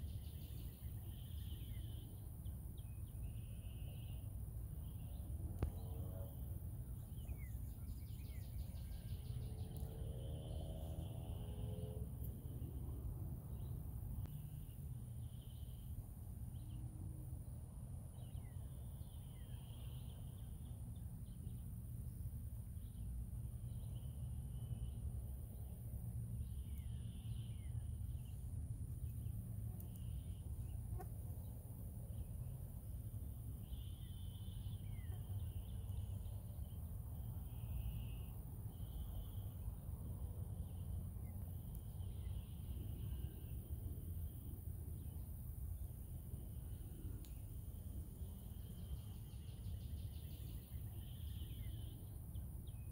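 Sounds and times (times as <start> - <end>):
insects whining: 18.1 - 52.9.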